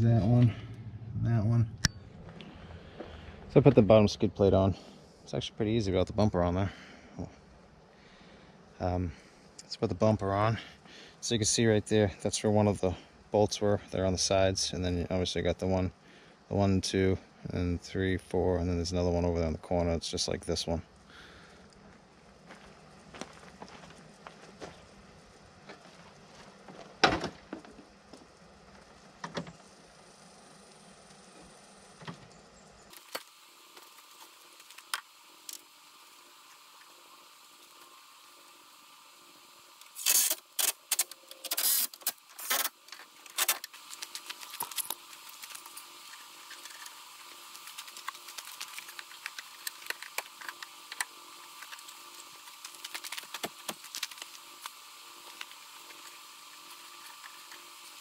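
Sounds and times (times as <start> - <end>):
cordless power tool bursts: 39.8 - 58.0.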